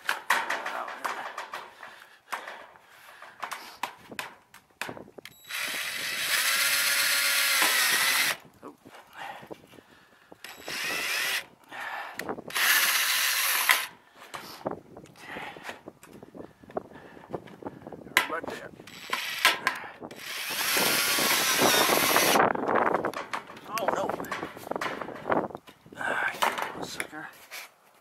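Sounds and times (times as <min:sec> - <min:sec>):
cordless drill driving screws: 0:05.3 - 0:08.4, 0:10.4 - 0:11.5, 0:12.5 - 0:13.9, 0:18.8 - 0:22.4.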